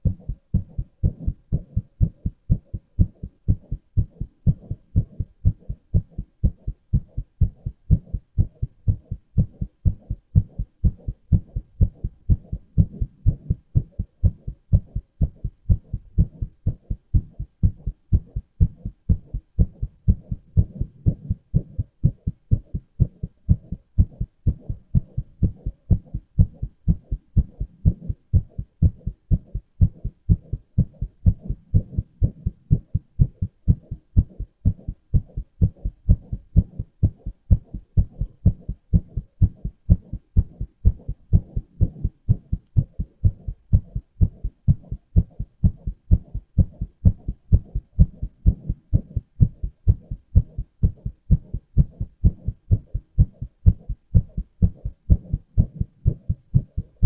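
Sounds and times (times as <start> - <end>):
heartbeat thumping: 0.0 - 57.0.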